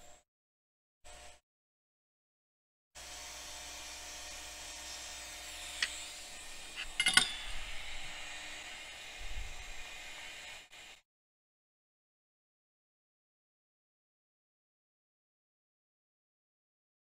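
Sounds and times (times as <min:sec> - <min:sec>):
steady equipment hiss: 0:03.0 - 0:11.0
metal tools clinking: 0:06.8 - 0:07.7.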